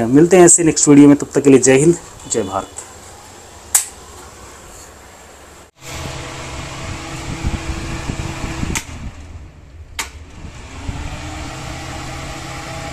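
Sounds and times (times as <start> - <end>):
fan motor humming: 1.3 - 12.9
switch clicks: 3.7 - 4.0.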